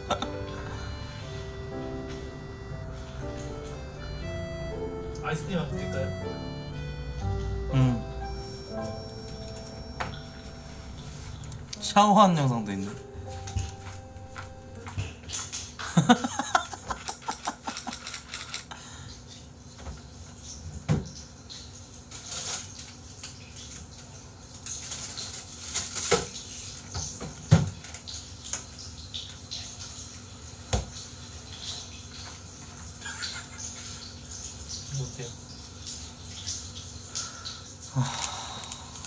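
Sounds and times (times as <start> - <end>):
shower water spraying and splashing: 15.0 - 18.0, 18.8 - 39.0.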